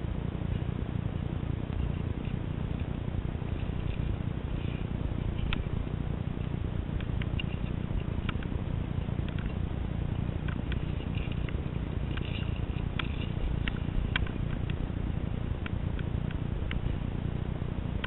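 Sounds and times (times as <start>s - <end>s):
steady low rumble: 0.0s - 18.0s
climbing gear clicking and clinking: 10.4s - 14.8s.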